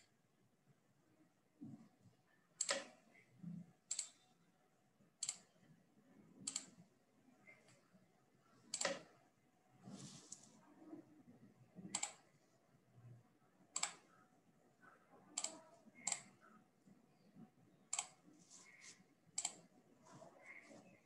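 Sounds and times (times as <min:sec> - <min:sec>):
computer mouse clicks: 0:02.6 - 0:03.0, 0:03.9 - 0:04.2, 0:05.2 - 0:05.5, 0:06.4 - 0:06.8, 0:08.7 - 0:09.1, 0:11.8 - 0:12.3, 0:13.7 - 0:14.2, 0:15.4 - 0:16.3, 0:17.9 - 0:19.7.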